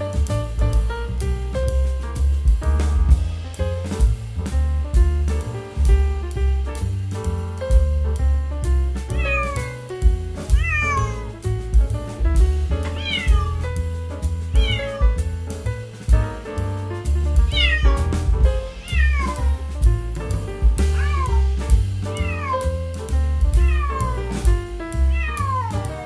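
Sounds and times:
music with beat and bass: 0.0 - 26.0
kitten meowing: 9.1 - 9.8, 10.5 - 11.4, 12.8 - 13.8, 14.5 - 15.0, 17.5 - 18.0, 18.7 - 19.6, 20.8 - 21.4, 22.1 - 22.7, 23.6 - 24.2, 25.1 - 26.0.

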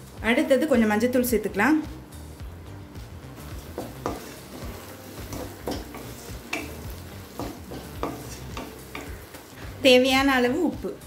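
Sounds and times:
onions sizzling in oil: 0.0 - 11.0
wooden spatula scraping a pan: 3.6 - 9.7.

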